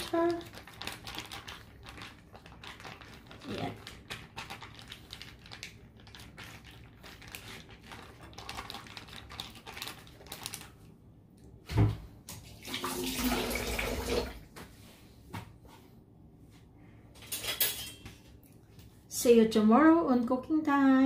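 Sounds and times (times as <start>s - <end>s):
plastic bag crinkling: 0.0s - 10.9s.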